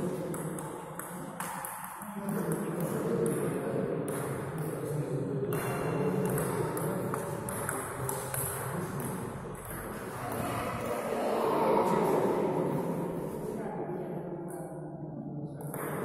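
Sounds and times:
table tennis ball pinging: 0:00.2 - 0:03.4, 0:05.5 - 0:10.4.

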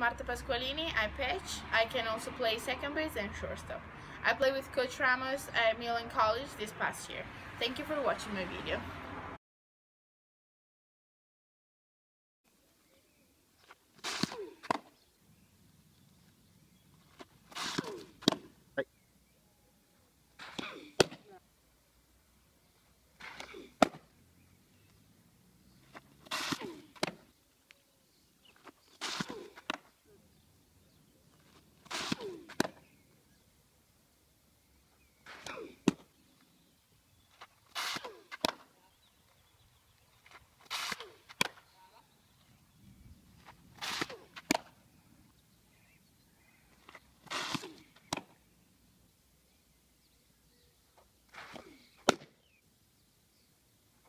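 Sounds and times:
ball smacking into mitt: 0:17.5 - 0:18.5, 0:20.4 - 0:21.3, 0:23.2 - 0:24.0, 0:31.8 - 0:32.8, 0:37.8 - 0:38.6, 0:43.8 - 0:44.7, 0:47.3 - 0:48.3, 0:51.4 - 0:52.4.

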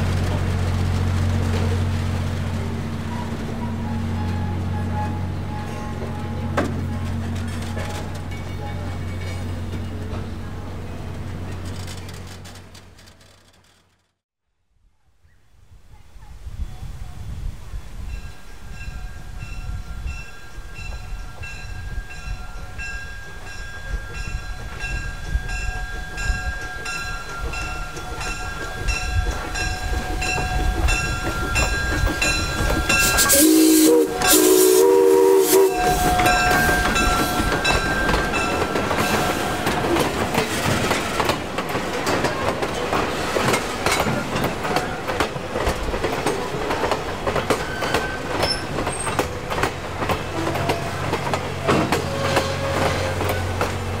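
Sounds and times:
steam locomotive passing: 0:00.0 - 0:13.1, 0:16.2 - 0:54.0
railroad crossing bell ringing: 0:03.1 - 0:07.2, 0:07.9 - 0:10.3, 0:18.1 - 0:42.9
train wheels clattering on rails: 0:05.6 - 0:10.4, 0:23.3 - 0:54.0
steam whistle blasts: 0:32.9 - 0:40.1, 0:51.7 - 0:53.6.

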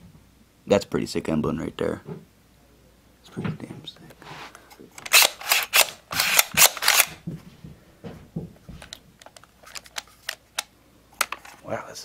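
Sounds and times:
airsoft rifle controls clacking: 0:05.0 - 0:07.2.

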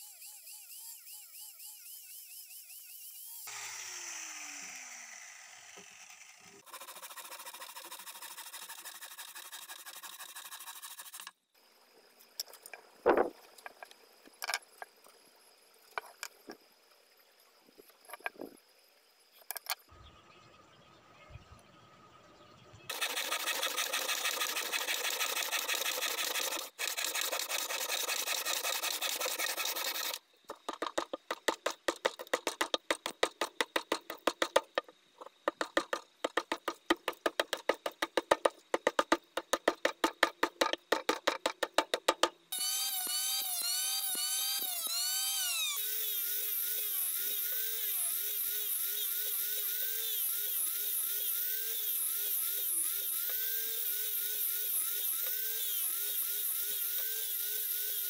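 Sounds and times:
band saw cutting wood: 0:00.0 - 0:11.3, 0:22.9 - 0:30.2, 0:42.5 - 0:58.0
electric sander whining: 0:03.4 - 0:06.6, 0:42.6 - 0:58.0
hand rasp on wood: 0:06.7 - 0:11.3, 0:22.9 - 0:30.2.

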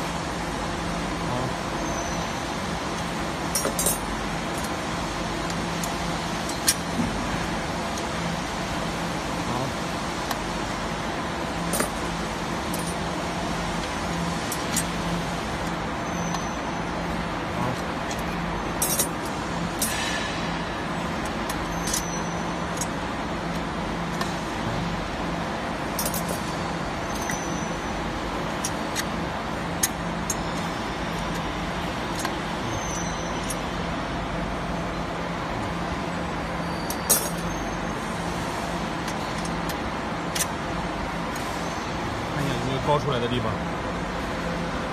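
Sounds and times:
machinery hum with low drone: 0:00.0 - 0:44.9
metallic clicks and clinks: 0:03.5 - 0:04.8, 0:18.1 - 0:20.0, 0:26.0 - 0:26.5, 0:36.9 - 0:37.5.

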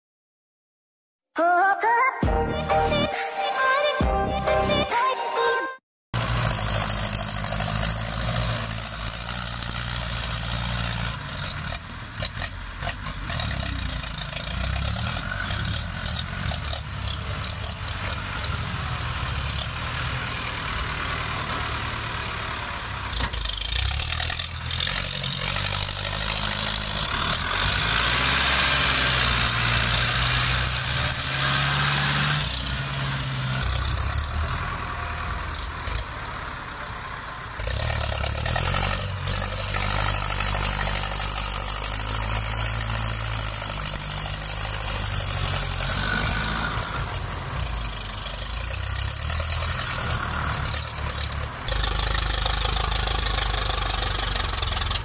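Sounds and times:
irregular clatter: 0:06.2 - 0:19.8, 0:23.1 - 0:27.8, 0:37.6 - 0:55.0
tractor diesel engines running hard: 0:06.2 - 0:55.0.

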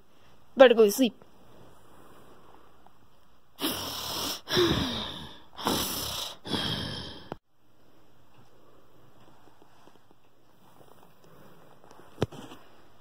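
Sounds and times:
person mock snoring: 0:03.6 - 0:07.4.

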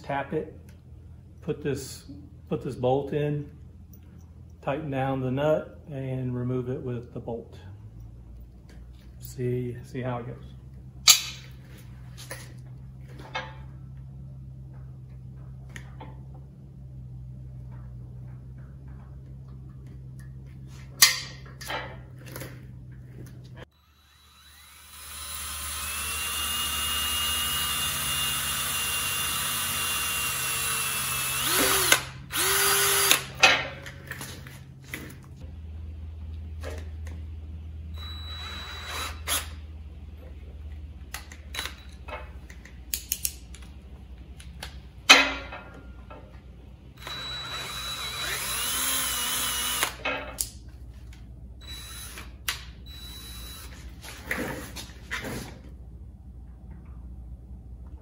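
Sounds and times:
cordless drill whining: 0:23.8 - 0:33.3, 0:38.0 - 0:39.6, 0:47.0 - 0:50.0, 0:51.6 - 0:53.8.

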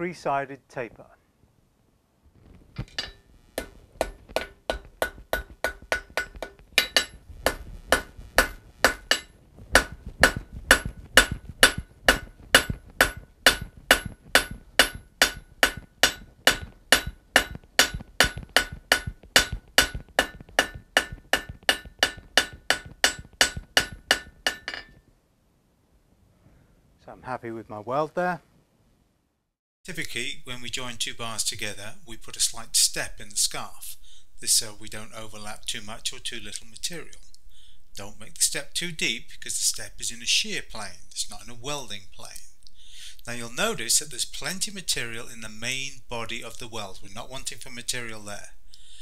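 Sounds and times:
hammer striking anvil: 0:02.9 - 0:25.0.

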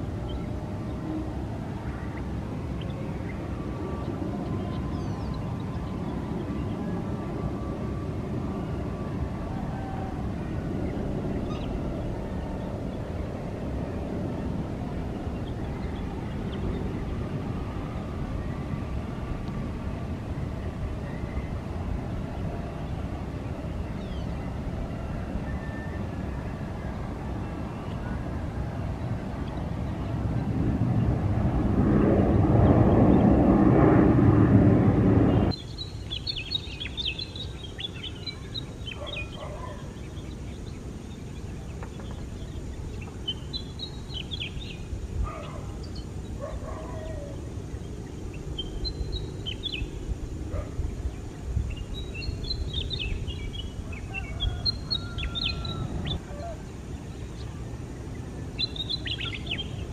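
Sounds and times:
low steady rumble: 0:00.0 - 0:35.6
jet engines running: 0:00.0 - 0:54.1, 0:55.8 - 0:59.9
small birds chirping: 0:35.2 - 0:59.9.

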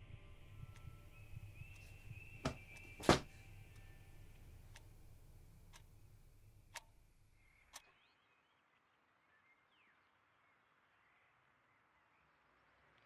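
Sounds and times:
faint ticks: 0:01.6 - 0:07.9
loud knock: 0:02.5 - 0:03.3.

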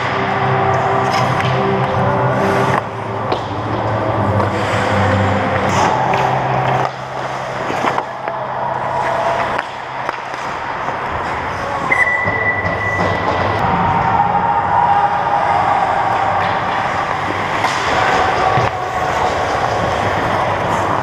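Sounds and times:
hockey sticks and puck clacking: 0:00.0 - 0:21.0
skates scraping ice: 0:00.0 - 0:21.0
referee's whistle: 0:11.9 - 0:13.2.

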